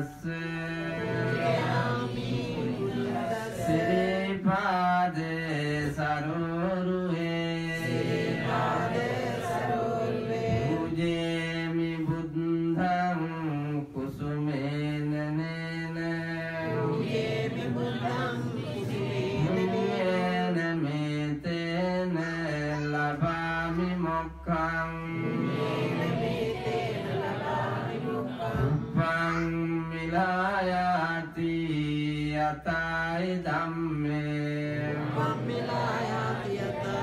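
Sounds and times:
monk chanting: 0:19.3 - 0:26.7, 0:28.4 - 0:37.0.

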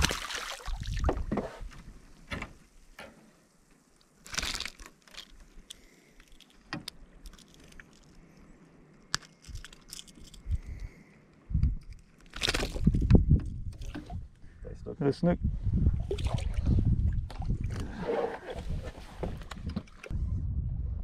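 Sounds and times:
plastic lure and hooks rattling: 0:04.2 - 0:08.3, 0:08.9 - 0:10.9.

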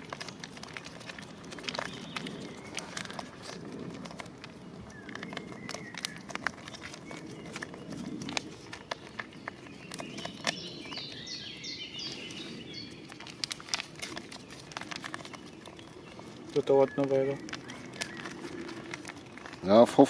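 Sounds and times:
foil packets crinkling: 0:00.0 - 0:20.0
bird chirping: 0:04.4 - 0:20.0.

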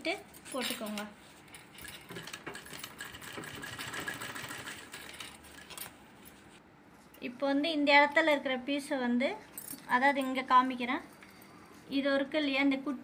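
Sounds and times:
sewing machine stitching: 0:02.1 - 0:05.8.

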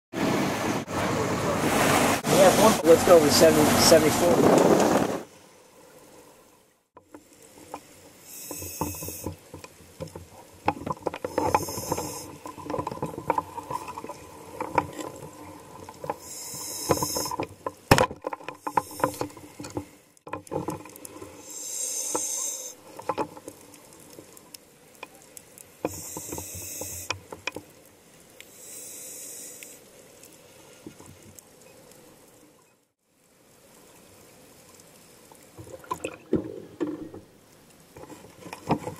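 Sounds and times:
crackle of small clicks: 0:07.0 - 0:28.6, 0:29.2 - 0:36.3
diver breathing through regulator: 0:11.3 - 0:12.4, 0:16.2 - 0:17.4, 0:18.6 - 0:20.0, 0:21.4 - 0:22.8, 0:25.9 - 0:27.2, 0:28.5 - 0:29.8.

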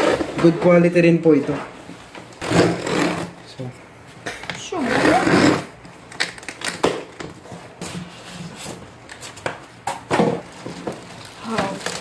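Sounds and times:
loud rustle of packaging: 0:10.2 - 0:12.0.

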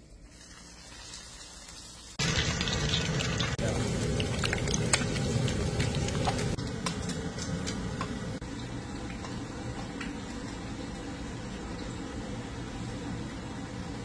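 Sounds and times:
fish frying in hot oil: 0:00.2 - 0:12.0.

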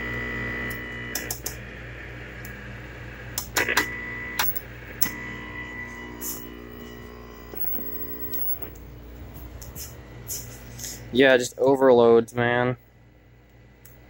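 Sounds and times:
electrical mains hum: 0:00.0 - 0:14.0
buzz of held tones: 0:03.4 - 0:11.0.

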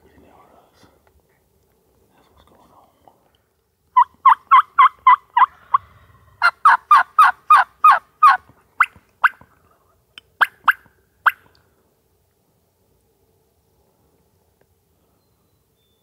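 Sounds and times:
turkey yelping: 0:04.0 - 0:05.8, 0:06.4 - 0:09.4.

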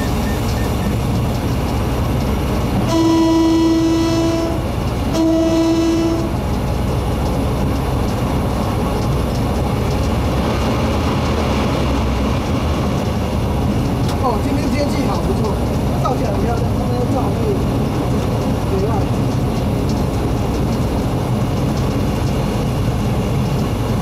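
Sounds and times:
moving train rumble: 0:00.0 - 0:24.0
locomotive horn blasts: 0:02.8 - 0:06.4.

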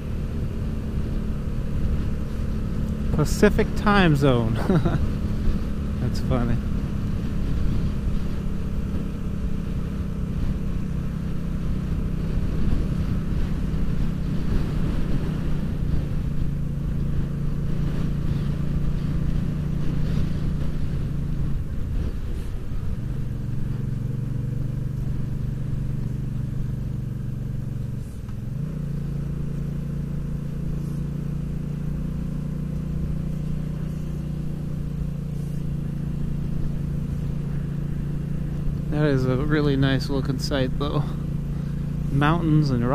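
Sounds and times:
wind noise: 0:00.0 - 0:26.2
motorcycle engine running: 0:00.0 - 0:42.9.

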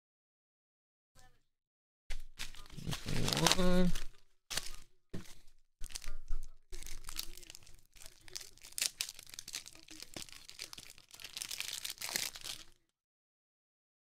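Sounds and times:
paper wrapping crinkling and tearing: 0:02.2 - 0:12.8.

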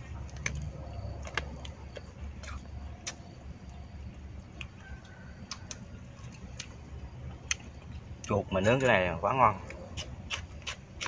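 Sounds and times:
person chewing: 0:00.0 - 0:03.4, 0:04.5 - 0:08.3, 0:09.6 - 0:11.0.

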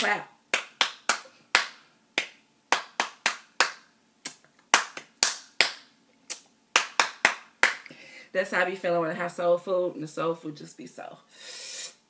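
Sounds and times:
person clapping hands: 0:00.0 - 0:07.9.

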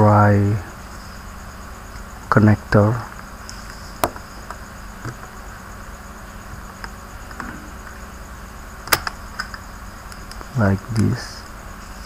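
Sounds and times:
steady hiss with high pulsing: 0:00.0 - 0:12.0.

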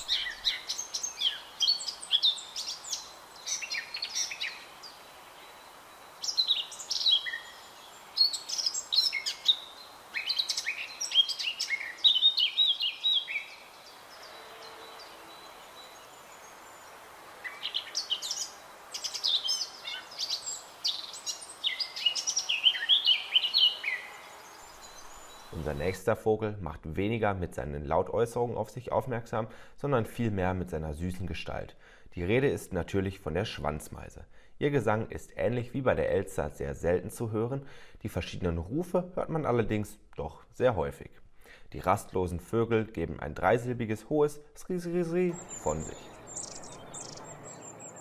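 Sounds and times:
bird singing warbling phrases: 0:00.0 - 0:26.1, 0:45.0 - 0:48.0.

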